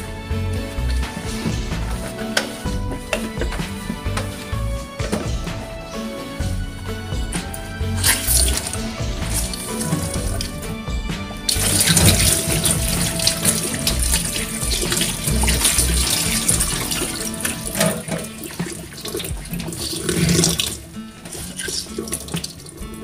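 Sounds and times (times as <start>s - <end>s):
water splashing over hands: 7.3s - 23.0s
tap running into sink: 11.5s - 22.7s.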